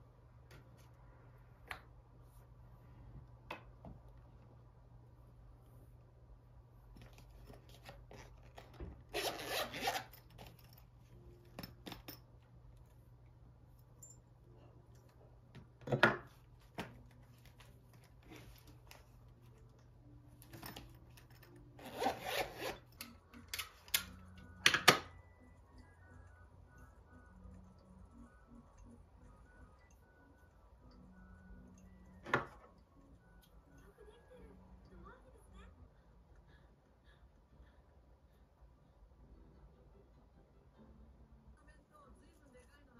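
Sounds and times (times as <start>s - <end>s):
zipper pulled: 7.8s - 10.3s, 21.8s - 23.0s.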